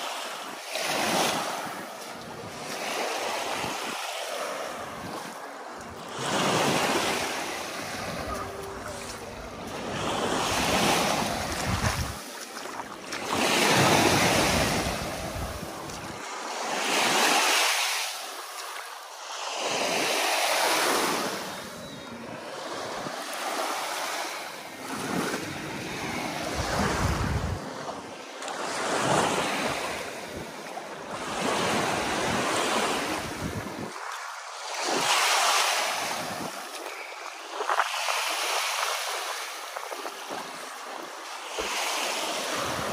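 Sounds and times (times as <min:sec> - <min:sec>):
small waves washing ashore: 0:00.0 - 0:42.9
wind buffeting microphone: 0:06.2 - 0:12.2, 0:13.7 - 0:16.2, 0:25.0 - 0:27.8.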